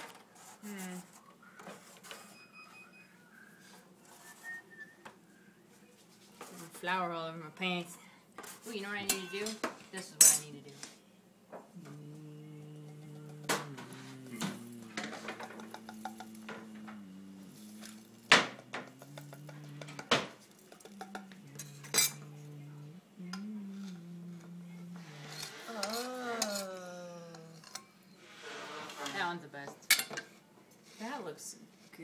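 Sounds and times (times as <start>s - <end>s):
low tune in steady notes: 11.7s - 25.2s
ceramic plates clinking: 13.0s - 22.4s.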